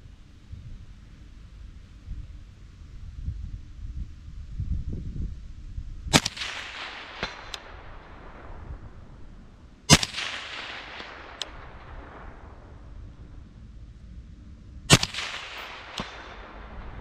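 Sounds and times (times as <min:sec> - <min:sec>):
rifle shots echoing: 0:06.1 - 0:13.5, 0:14.9 - 0:17.0
faint sharp crack: 0:06.2 - 0:08.4, 0:09.9 - 0:12.6, 0:14.9 - 0:16.8.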